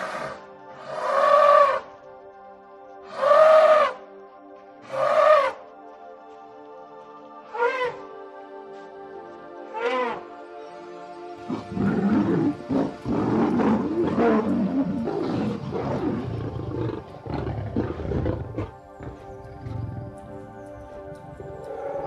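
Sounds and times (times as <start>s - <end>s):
background music with held tones: 0.0s - 22.0s
large animal rough calls: 11.5s - 20.2s.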